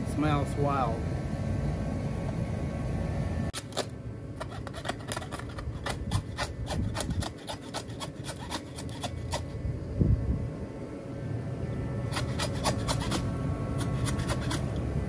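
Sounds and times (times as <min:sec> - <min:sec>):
knife scraping meat from bone: 0:03.6 - 0:09.6, 0:12.1 - 0:14.8.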